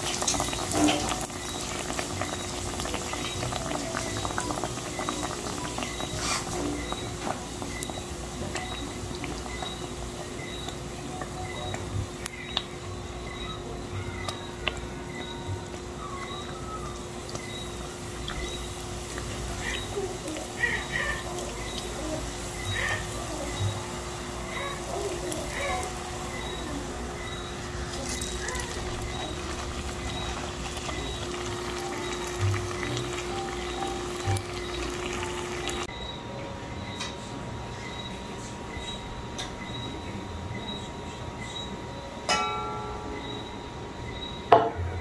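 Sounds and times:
oil popping and crackling: 0.0 - 14.9, 15.6 - 35.9
hot oil bubbling and sizzling: 0.0 - 35.9.

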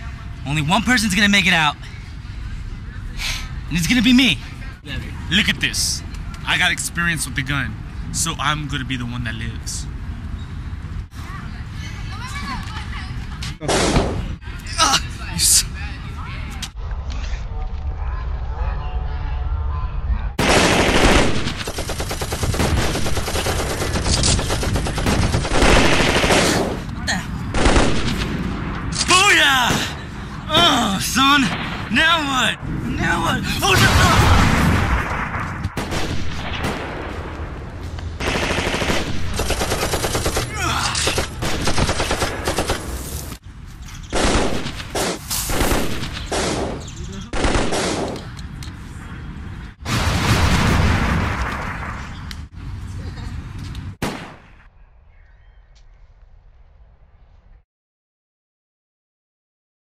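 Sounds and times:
automatic gunfire: 20.4 - 26.8, 27.6 - 28.3, 38.2 - 42.9, 44.2 - 48.2
gunshot bursts: 20.4 - 26.8, 27.5 - 28.4, 33.8 - 37.2, 38.2 - 40.5, 44.1 - 48.2, 54.0 - 54.5
machine-gun fire: 20.4 - 26.8, 27.5 - 28.4, 33.8 - 37.2, 38.2 - 40.5, 41.1 - 43.0, 44.1 - 48.2.

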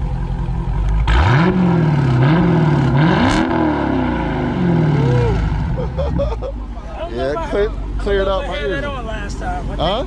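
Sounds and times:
car engine revving: 0.7 - 6.5.

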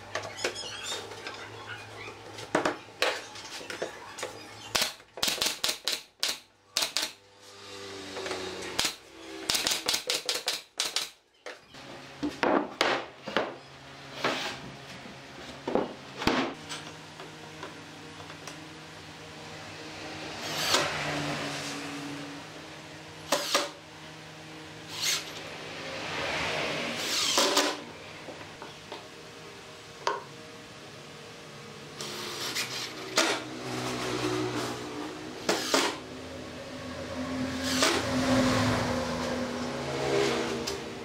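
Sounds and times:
nail gun firing into wood: 4.8 - 7.2, 8.8 - 11.2.

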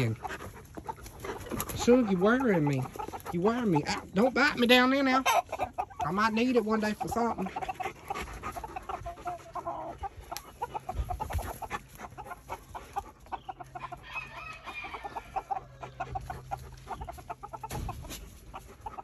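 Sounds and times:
chickens clucking: 0.0 - 19.0
high-pitched chicken call: 13.7 - 16.4.

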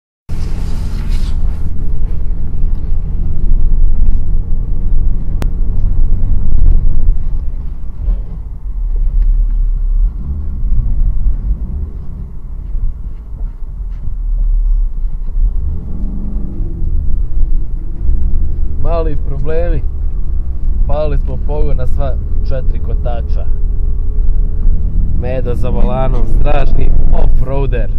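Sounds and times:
car engine and tyres rumbling: 0.3 - 27.9.

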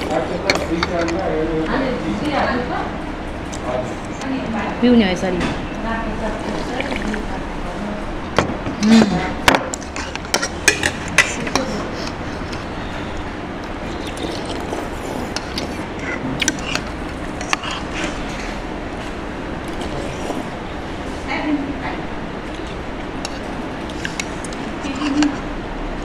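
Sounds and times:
dishes and cutlery clinking: 0.0 - 1.3, 8.9 - 12.6, 23.2 - 25.4
faint voices: 0.0 - 18.7, 19.7 - 25.6
steady background hum: 0.0 - 26.0.

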